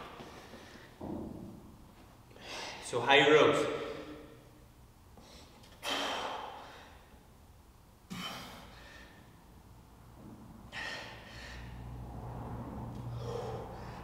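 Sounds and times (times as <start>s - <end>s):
man breathing out hard: 2.3s - 2.8s, 5.2s - 7.1s, 8.1s - 9.4s, 10.7s - 12.0s, 13.0s - 14.0s.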